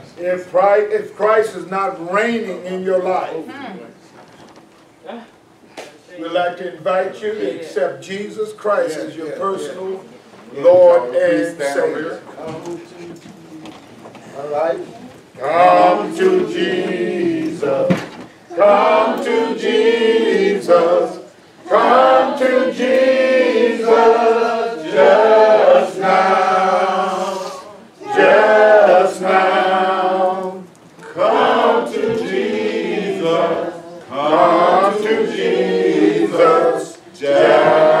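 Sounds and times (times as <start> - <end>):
congregation singing a hymn: 15.4 - 38.0.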